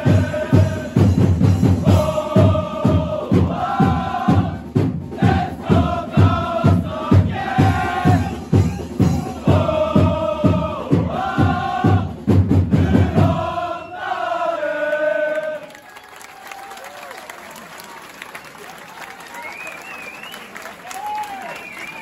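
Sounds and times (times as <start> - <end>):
steady drum beat: 0.0 - 13.8
crowd chanting in unison: 0.0 - 15.8.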